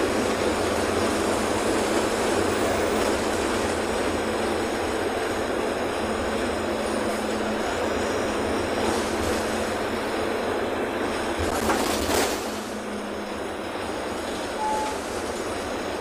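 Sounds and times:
bus engine and road noise: 0.0 - 16.0
short beep: 14.6 - 15.1.

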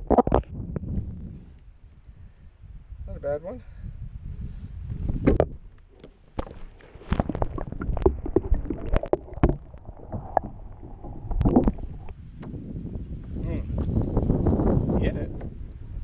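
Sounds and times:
muffled underwater sloshing: 6.0 - 13.1.

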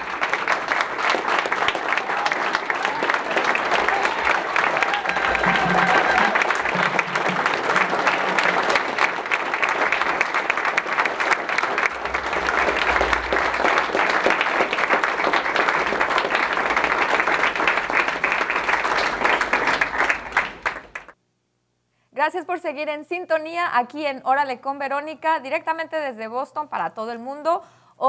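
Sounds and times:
crowd applauding: 0.0 - 21.2.

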